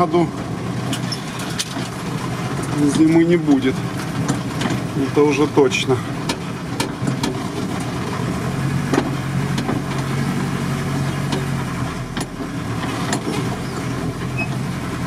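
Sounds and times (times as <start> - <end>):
van engine humming: 0.0 - 15.0
knocks and rattles: 6.2 - 8.2.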